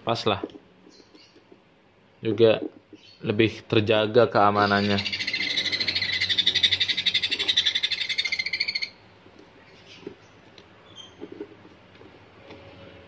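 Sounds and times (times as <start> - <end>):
bird chicks rasping calls: 4.4 - 11.5.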